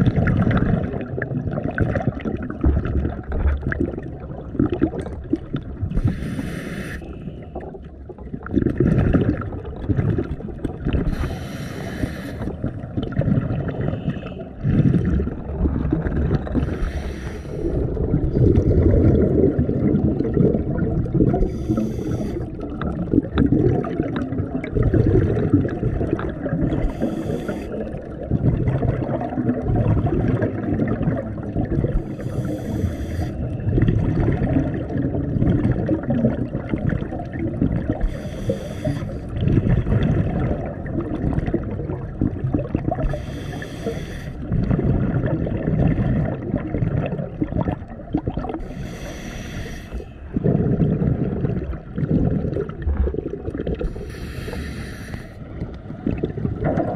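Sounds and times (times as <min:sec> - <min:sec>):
bubbles and moving water rumble: 0:00.0 - 0:56.9
diver breathing through regulator: 0:05.9 - 0:07.6, 0:11.0 - 0:12.7, 0:16.5 - 0:18.0, 0:21.3 - 0:22.7, 0:26.7 - 0:28.0, 0:32.0 - 0:33.6, 0:38.0 - 0:39.5, 0:43.0 - 0:44.5, 0:48.6 - 0:50.9, 0:53.8 - 0:55.6.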